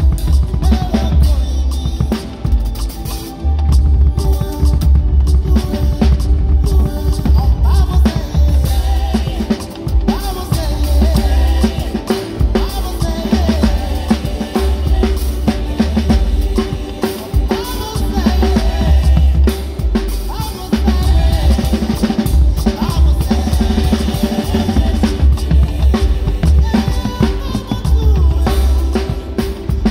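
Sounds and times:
bass line: 0.0s - 29.9s
drum kit groove: 0.0s - 29.9s.

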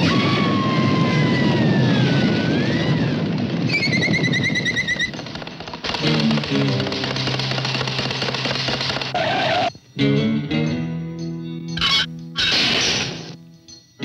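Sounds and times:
long falling scream: 0.0s - 3.2s
rapid rattling rush: 0.0s - 9.7s
music: 5.4s - 14.0s.

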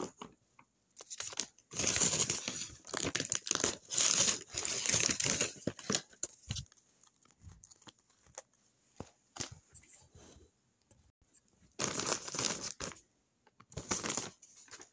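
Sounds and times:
paper crinkling and rustling: 1.0s - 8.6s, 13.7s - 14.9s.

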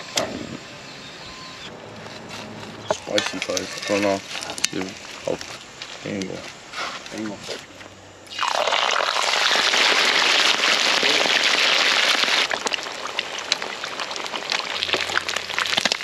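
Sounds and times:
fish deep-frying in oil: 8.3s - 16.0s.

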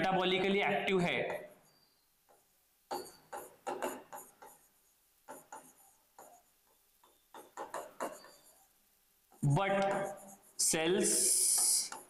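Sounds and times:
stylus tapping on glass: 2.9s - 4.2s.

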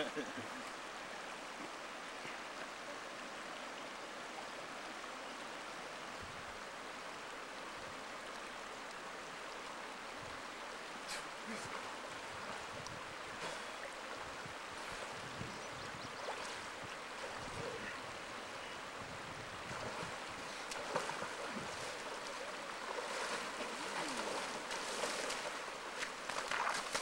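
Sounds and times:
creek running over rocks: 0.0s - 27.0s
person wading through water: 19.6s - 27.0s.

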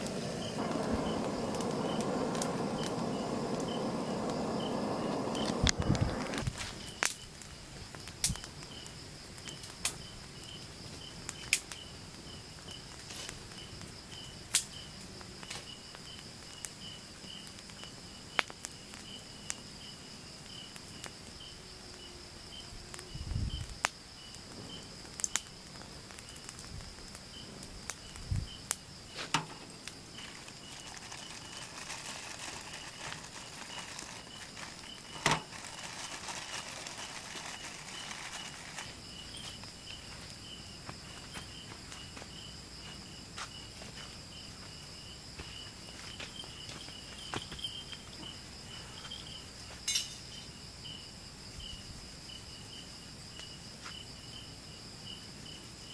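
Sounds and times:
campfire crackling and popping: 0.0s - 22.0s, 22.9s - 42.0s
cricket chirping: 0.0s - 55.9s
insects trilling: 0.0s - 55.9s.

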